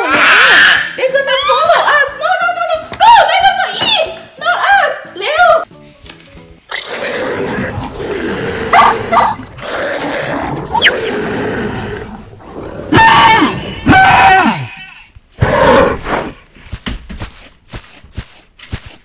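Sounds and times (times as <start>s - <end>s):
dinosaur growls and roars: 6.7s - 14.8s, 15.4s - 16.4s.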